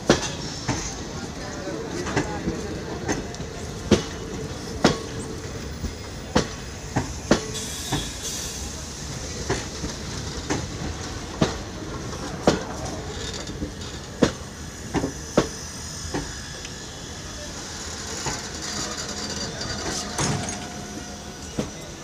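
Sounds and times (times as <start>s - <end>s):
train rumble: 0.0s - 22.0s
train wheels clacking over rail joints: 0.0s - 22.0s.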